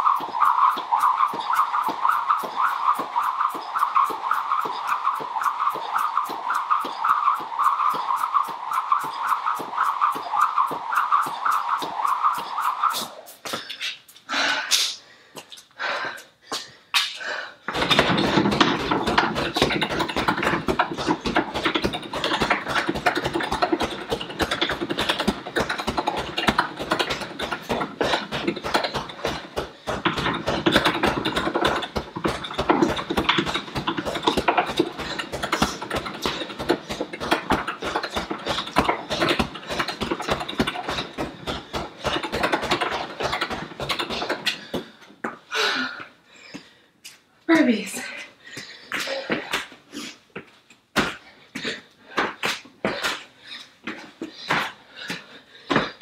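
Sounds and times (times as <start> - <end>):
gloves punching heavy bag: 0.0 - 12.6, 17.7 - 45.0.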